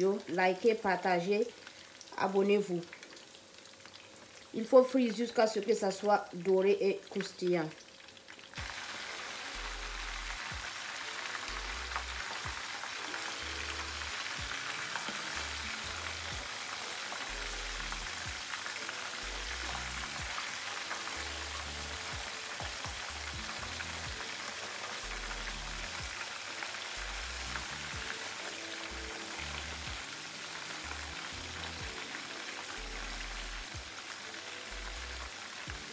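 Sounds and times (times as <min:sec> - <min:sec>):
fish sizzling in oil: 0:00.0 - 0:35.9.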